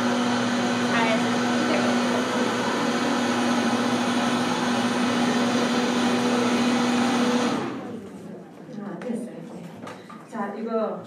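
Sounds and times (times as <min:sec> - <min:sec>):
electric blender running: 0:00.0 - 0:08.2.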